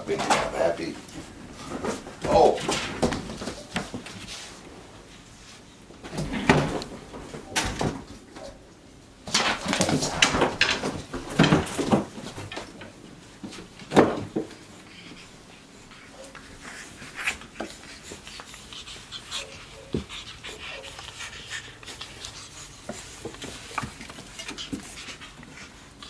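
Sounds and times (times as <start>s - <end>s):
knocks and thumps on furniture: 9.3s - 12.8s, 13.5s - 14.6s.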